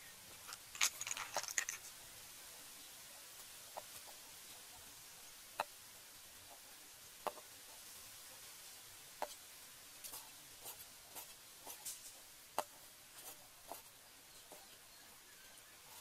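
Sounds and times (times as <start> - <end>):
soft ticks and scrapes on chopping board: 7.2 - 7.8.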